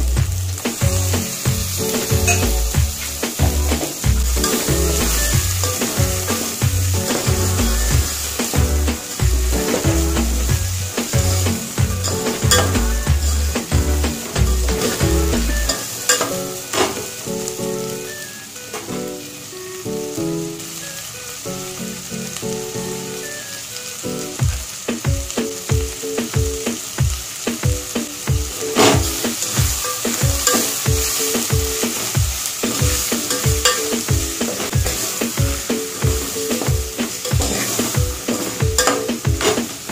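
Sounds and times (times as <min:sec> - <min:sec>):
background music with beat: 0:00.0 - 0:39.9
vegetables sizzling in oil: 0:00.0 - 0:39.9
metal spatula scraping pot: 0:01.8 - 0:08.6, 0:36.5 - 0:39.7.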